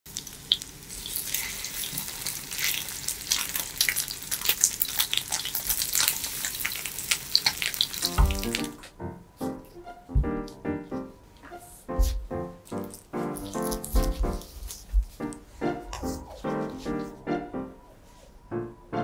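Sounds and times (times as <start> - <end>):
food sizzling in frying pan: 0.1 - 8.7
light piano music: 8.0 - 19.0.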